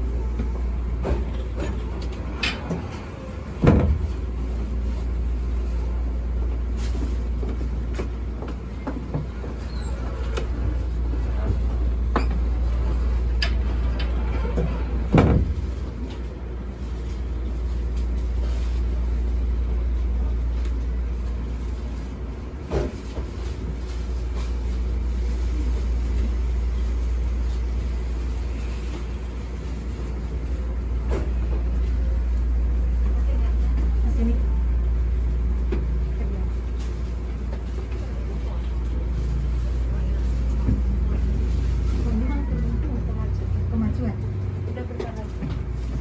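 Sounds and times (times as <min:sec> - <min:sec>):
low hum of train equipment: 0:00.0 - 0:46.0.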